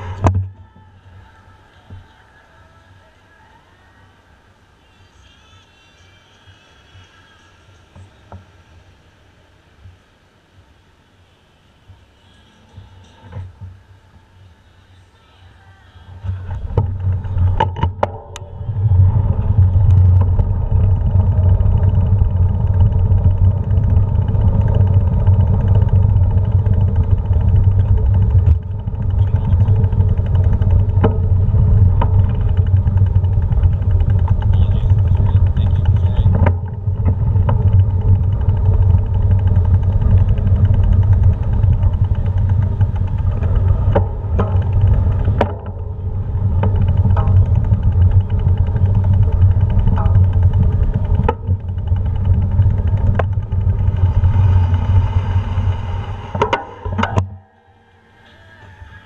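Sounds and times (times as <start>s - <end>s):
bicycle rolling over paving stones: 16.1s - 57.0s.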